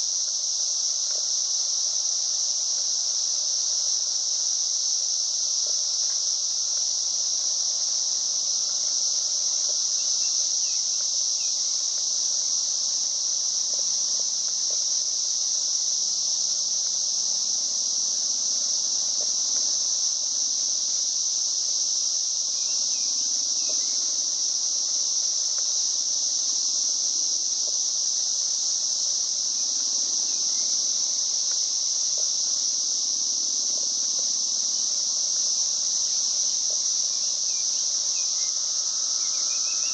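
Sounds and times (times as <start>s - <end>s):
insects droning: 0.0s - 39.9s
faint ticks: 0.9s - 2.0s, 5.3s - 6.8s, 7.6s - 15.1s, 18.5s - 19.9s, 22.6s - 26.3s, 27.6s - 28.0s, 30.3s - 32.7s, 33.6s - 39.9s.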